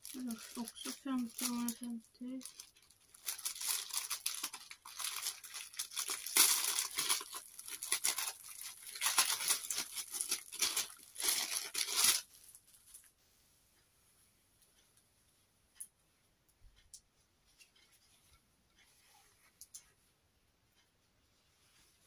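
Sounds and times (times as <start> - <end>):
plastic bag crinkling: 0.0 - 13.1.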